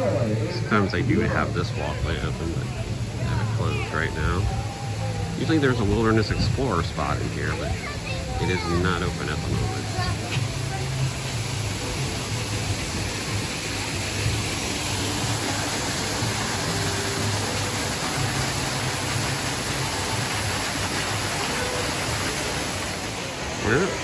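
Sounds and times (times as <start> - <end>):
faint background music: 0.0 - 24.0
small waterfall rushing: 0.0 - 24.0.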